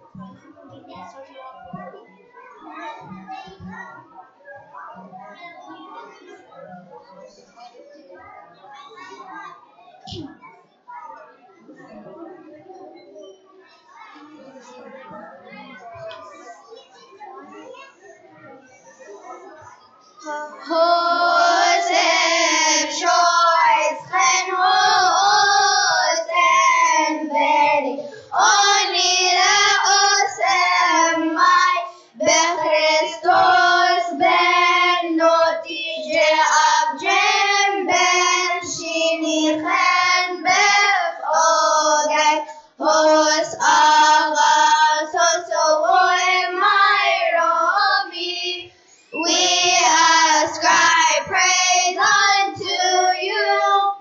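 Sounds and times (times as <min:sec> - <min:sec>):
children's choir singing: 0:20.2 - 0:54.0.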